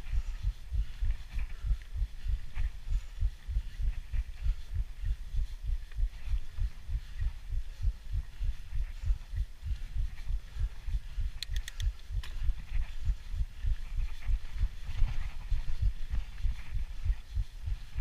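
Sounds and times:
wind on microphone: 0:00.0 - 0:18.0
faint light ticks: 0:11.3 - 0:12.5.

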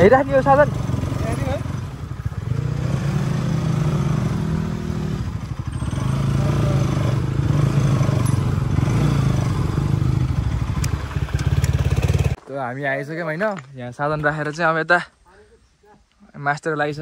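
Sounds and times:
motorcycle engine running: 0:00.0 - 0:12.4.

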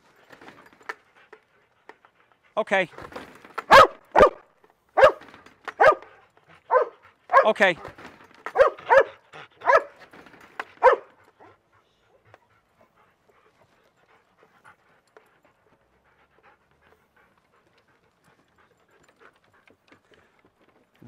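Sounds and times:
dog barking: 0:03.7 - 0:04.4, 0:05.0 - 0:06.1, 0:06.7 - 0:07.6, 0:08.5 - 0:10.0, 0:10.8 - 0:11.2.

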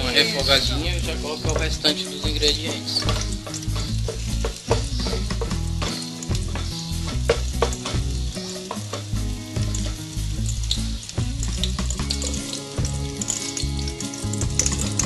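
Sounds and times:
garlic and onion sizzling in oil: 0:00.0 - 0:15.0
wooden spoon stirring: 0:01.4 - 0:09.1
spoon knocking against pot: 0:01.5 - 0:09.1.

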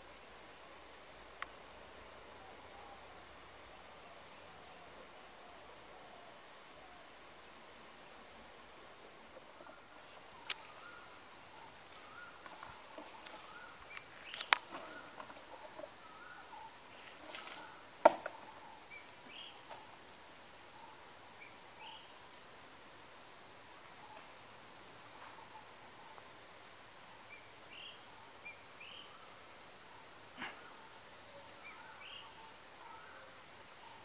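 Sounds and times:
faint bird chirps: 0:30.4 - 0:34.0.

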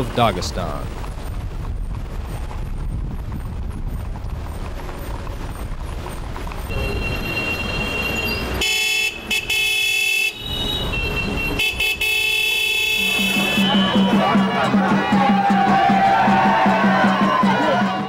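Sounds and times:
car road noise: 0:00.0 - 0:16.7
car horns honking: 0:06.7 - 0:15.3.

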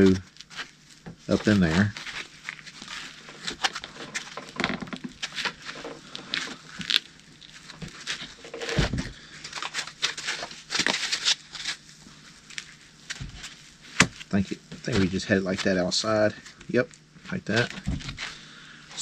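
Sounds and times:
scratchy rubbing of foam: 0:09.9 - 0:16.5.

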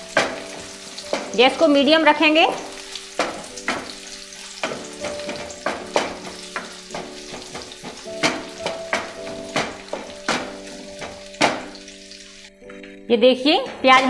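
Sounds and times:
onions sizzling in hot oil: 0:00.0 - 0:14.0
spatula scraping a pan: 0:02.5 - 0:12.5.

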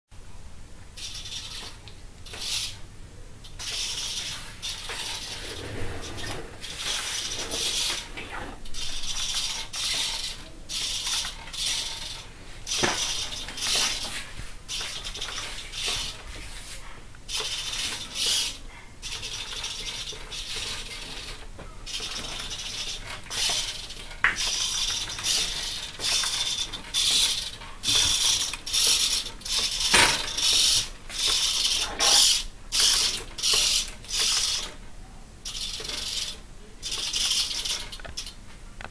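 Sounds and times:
servos whirring: 0:03.5 - 0:16.4, 0:17.3 - 0:34.8.

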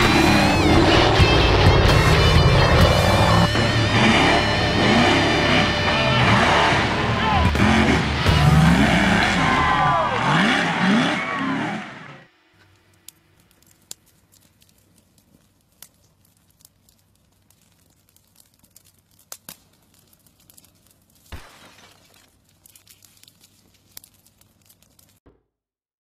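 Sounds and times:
crackle of sharp clicks: 0:12.6 - 0:25.3.

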